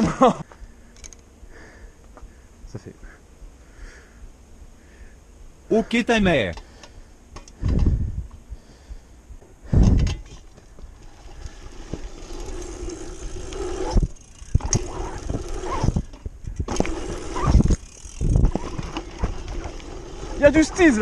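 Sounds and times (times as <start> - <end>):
bike tyres humming on dirt: 5.8 - 21.0.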